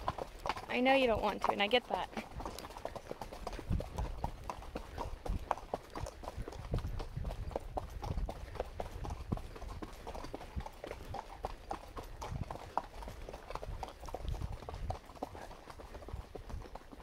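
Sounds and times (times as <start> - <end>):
horse hooves on gravel: 0.0 - 17.0.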